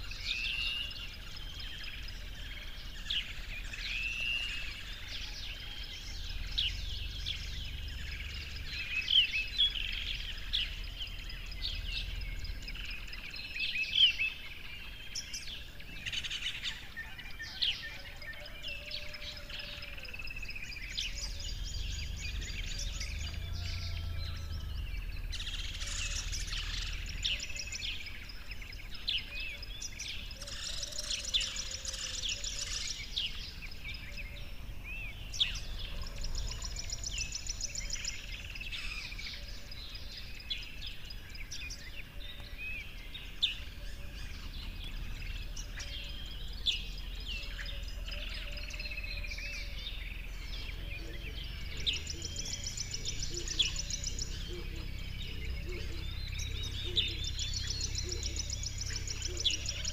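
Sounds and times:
songbirds singing: 0.0s - 59.9s
low steady rumble: 0.1s - 16.8s, 20.3s - 59.9s.

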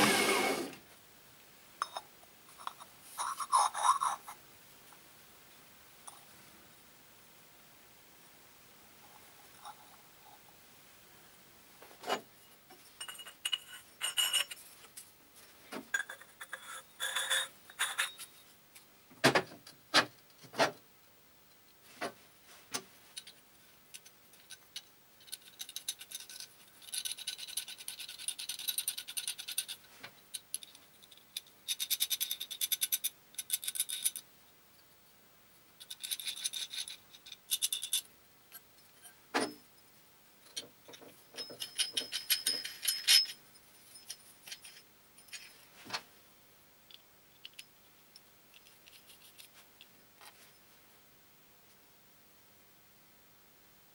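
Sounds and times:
metal parts clinking on workbench: 13.0s - 14.6s, 40.5s - 45.6s.

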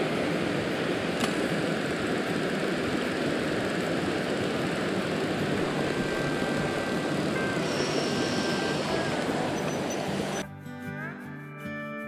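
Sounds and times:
stream rushing over stones: 0.0s - 10.4s
sharp click: 1.2s - 1.4s.

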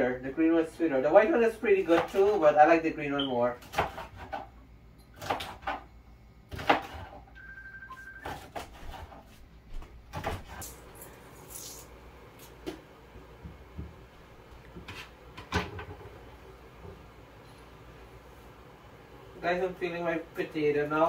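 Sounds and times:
knife on wooden cutting board: 14.8s - 15.2s.

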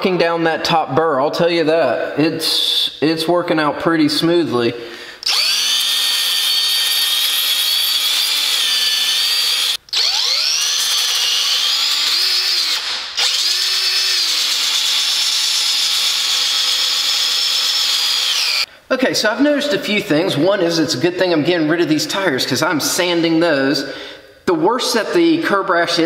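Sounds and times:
drill sanding disc whining: 5.2s - 18.7s.

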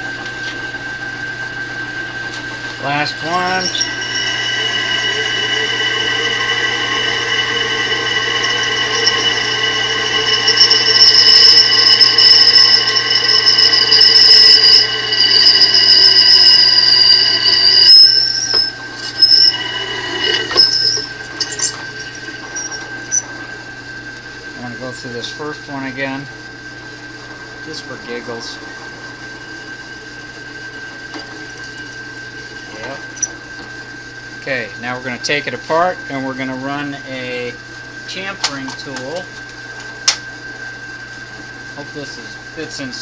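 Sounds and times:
drill press motor hum: 0.0s - 24.7s, 26.4s - 34.0s
drill bit squealing: 1.4s - 26.2s, 26.8s - 33.8s.

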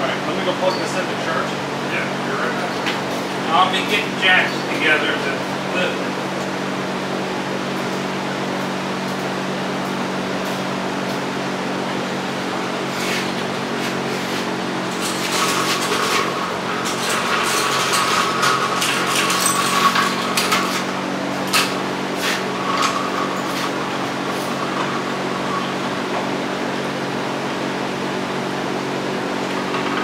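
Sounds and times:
steady mechanical hum: 0.0s - 30.0s
metal gear clanking and scraping: 15.0s - 20.9s.

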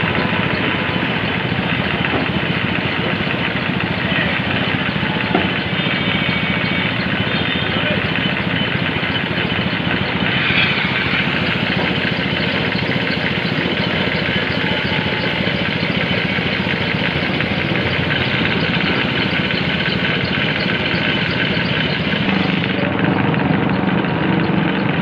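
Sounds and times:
air compressor chugging: 0.0s - 25.0s.

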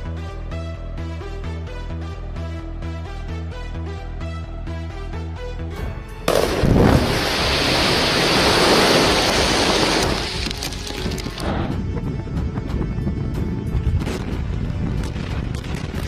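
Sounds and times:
rock blast with flying debris: 6.3s - 11.4s.

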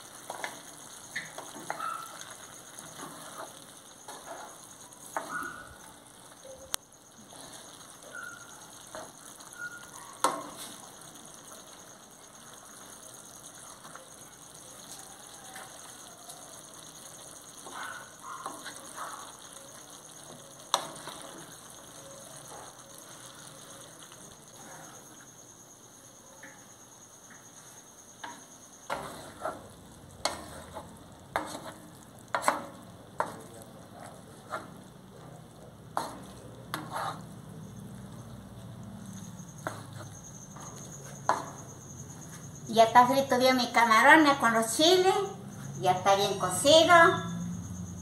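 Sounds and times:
food sizzling in a metal pan: 0.0s - 48.0s
wooden spoon scraping a pan: 0.1s - 5.5s, 7.2s - 9.5s, 27.6s - 34.9s, 35.9s - 37.5s, 39.5s - 42.5s.

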